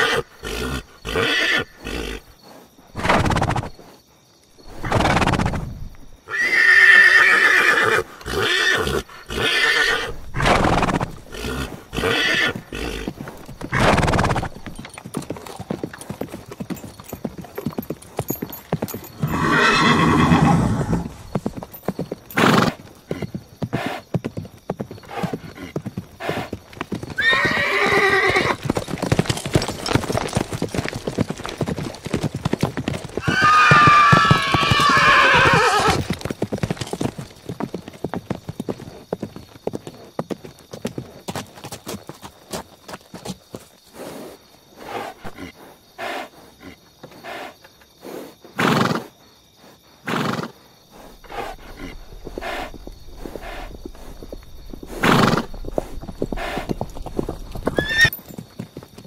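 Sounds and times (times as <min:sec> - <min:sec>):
horse neighing: 0:00.0 - 0:02.3, 0:06.3 - 0:14.8, 0:18.7 - 0:21.4, 0:27.1 - 0:28.7, 0:33.2 - 0:36.2, 0:51.1 - 0:58.2
horse hooves clip-clopping: 0:10.7 - 0:45.4, 0:50.8 - 0:59.0
low horse call: 0:18.3 - 0:21.5, 0:33.2 - 0:36.1, 0:51.0 - 0:58.3.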